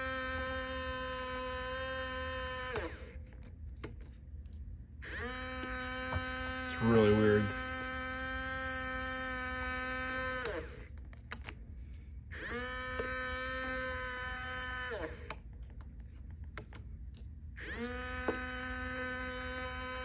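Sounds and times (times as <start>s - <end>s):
small electric motor humming: 0.0s - 3.2s, 5.0s - 10.9s, 12.3s - 15.4s, 17.6s - 20.0s.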